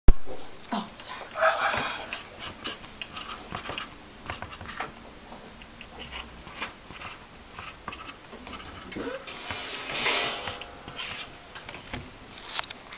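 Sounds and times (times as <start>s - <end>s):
marker squeaking on paper: 6.0s - 11.3s.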